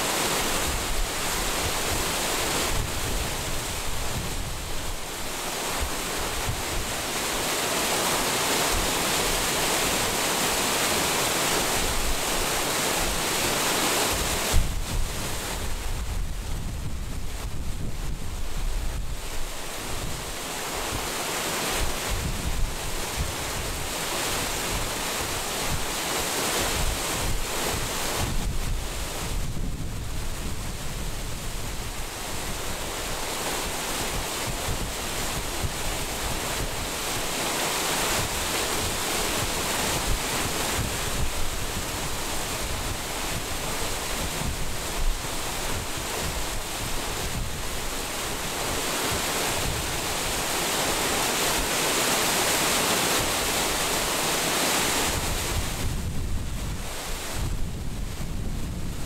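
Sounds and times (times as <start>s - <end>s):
wind buffeting microphone: 0.6s - 7.0s, 14.1s - 20.4s, 21.8s - 26.0s, 26.7s - 37.4s, 38.1s - 50.6s, 55.0s - 59.0s.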